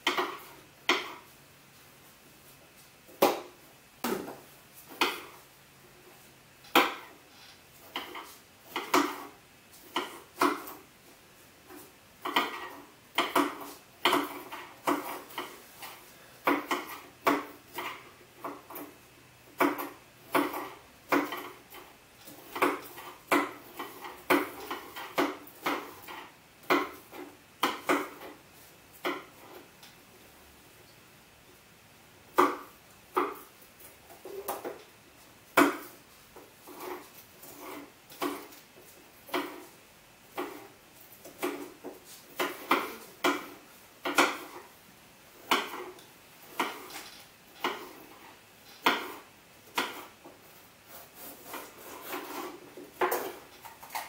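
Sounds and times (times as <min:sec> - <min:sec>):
knife chopping peppers: 0:06.7 - 0:10.9, 0:11.6 - 0:28.4, 0:32.3 - 0:34.8, 0:35.5 - 0:54.0.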